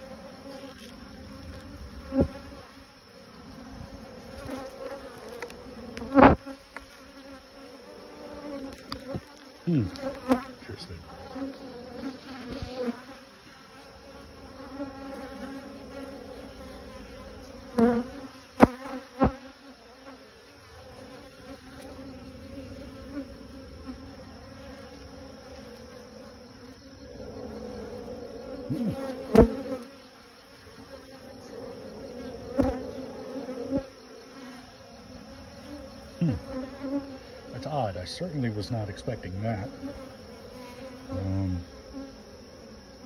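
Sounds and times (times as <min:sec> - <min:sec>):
bees buzzing: 0:00.0 - 0:43.0.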